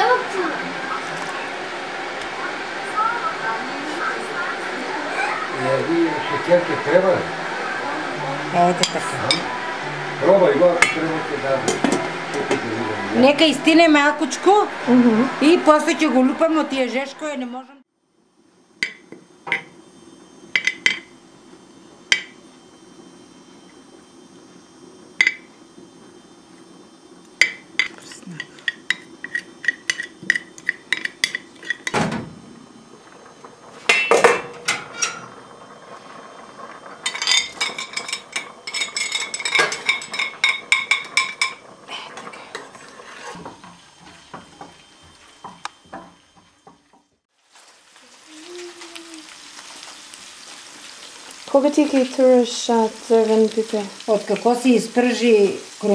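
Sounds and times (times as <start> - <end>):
utensils scraping dishes: 8.5 - 13.5, 27.8 - 32.0, 37.0 - 44.7.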